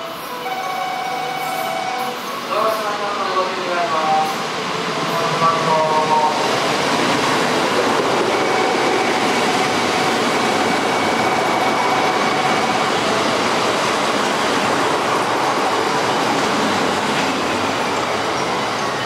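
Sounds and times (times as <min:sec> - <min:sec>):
train wheels rolling on rail: 0:00.2 - 0:19.0.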